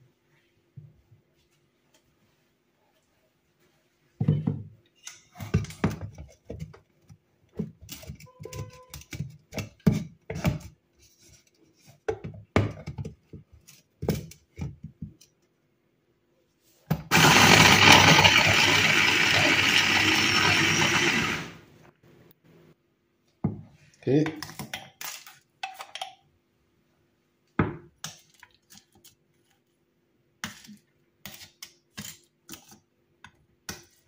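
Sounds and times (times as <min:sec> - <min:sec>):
mini chopper motor running: 0:17.1 - 0:21.6.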